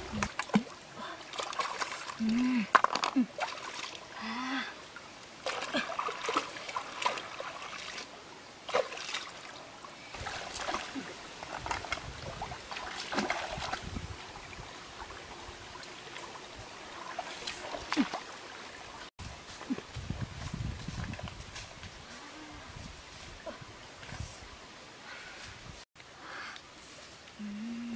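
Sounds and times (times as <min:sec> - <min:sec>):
stream trickling over rocks: 0:00.0 - 0:22.1.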